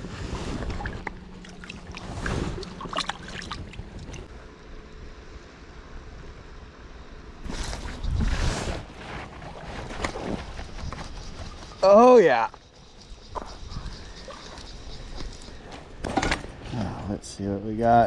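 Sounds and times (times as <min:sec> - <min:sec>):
wind rumbling on microphone: 0:07.4 - 0:11.8, 0:12.8 - 0:16.0.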